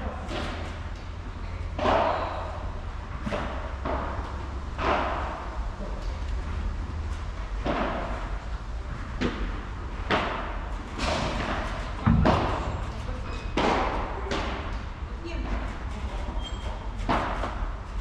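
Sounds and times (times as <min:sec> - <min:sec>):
heavy ball thud: 0:01.7 - 0:05.6, 0:09.1 - 0:15.0.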